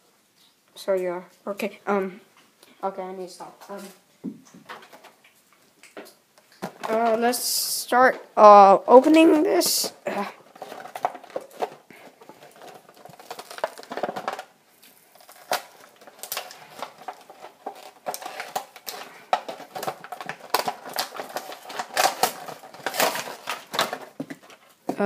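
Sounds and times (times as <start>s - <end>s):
plastic blister pack crinkling and tearing: 8.9s - 25.0s.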